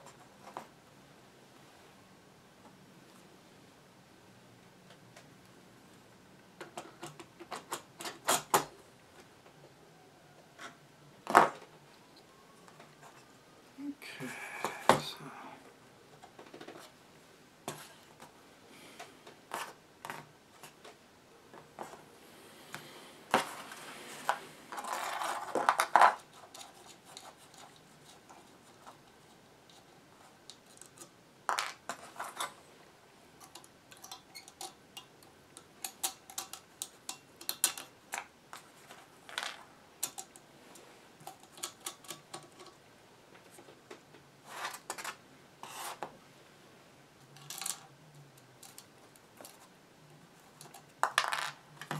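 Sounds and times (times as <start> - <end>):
small parts clicking and tapping: 33.4 - 45.2, 47.2 - 49.7, 50.4 - 51.9
rubbing and scraping on cardboard: 44.4 - 46.1.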